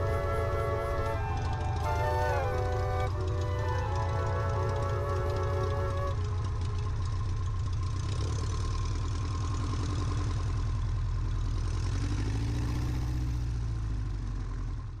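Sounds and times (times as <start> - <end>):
small plane engine idling: 0.0 - 12.7.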